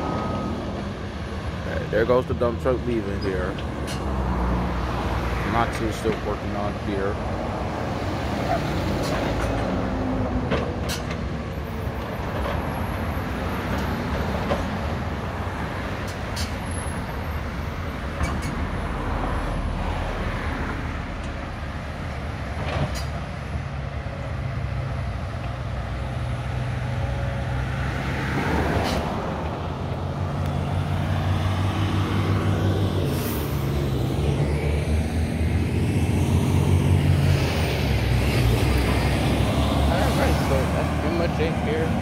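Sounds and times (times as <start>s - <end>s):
heavy diesel engines running: 0.0s - 42.0s
deep engine drone: 30.4s - 42.0s.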